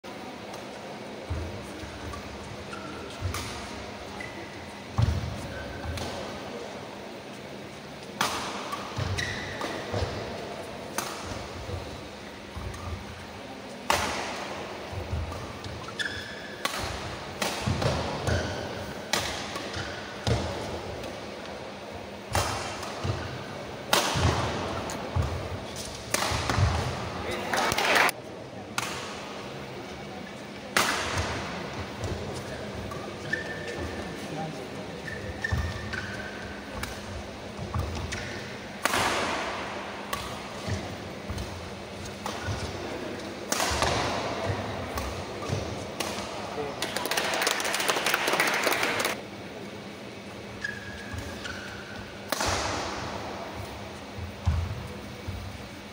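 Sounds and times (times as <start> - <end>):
shoe squeak: 2.1 - 3.3, 4.1 - 4.6, 9.0 - 9.6, 15.8 - 16.6, 33.0 - 34.0, 35.0 - 36.4, 50.5 - 52.0
racket striking shuttlecock: 3.1 - 3.8, 16.6 - 20.6, 22.3 - 27.8, 37.8 - 42.8, 43.4 - 46.3, 51.9 - 53.2.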